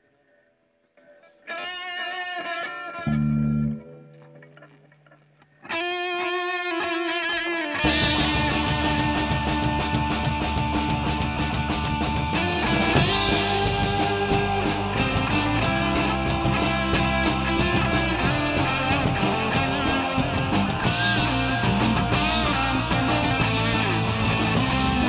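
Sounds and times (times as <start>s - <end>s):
electric guitars: 1.0s - 25.0s
drum kit: 7.8s - 25.0s.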